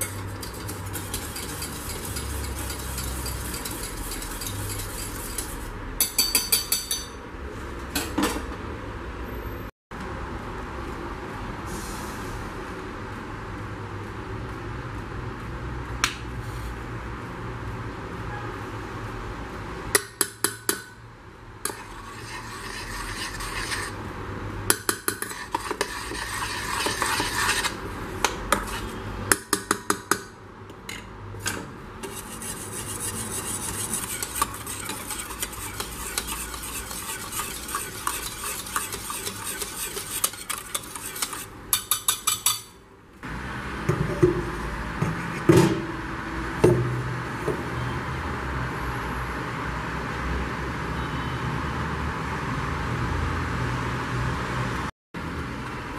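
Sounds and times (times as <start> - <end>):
spoon scraping a metal pan: 0.0 - 7.2, 21.6 - 24.0, 24.7 - 29.5, 32.0 - 42.8
spoon clinking on pan side: 6.0 - 7.2.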